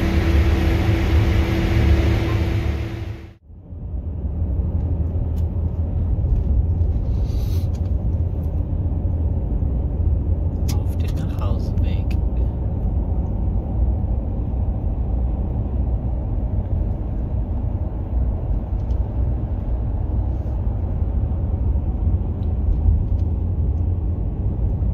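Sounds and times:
vehicle engine and tyres on gravel: 0.0s - 3.4s, 4.4s - 10.3s.

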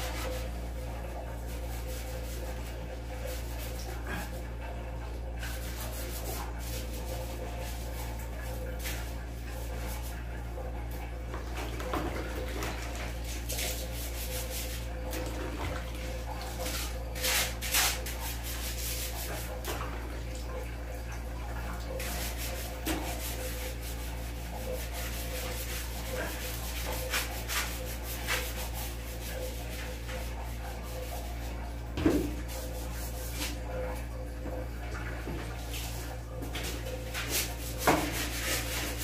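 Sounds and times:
scrubbing tiled floor: 0.0s - 39.0s.

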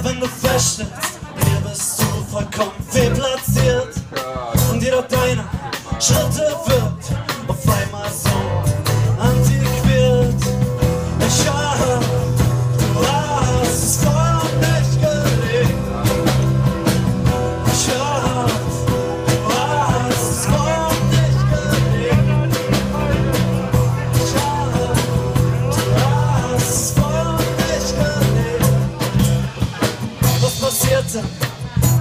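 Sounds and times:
live rock band playing: 0.0s - 32.0s.

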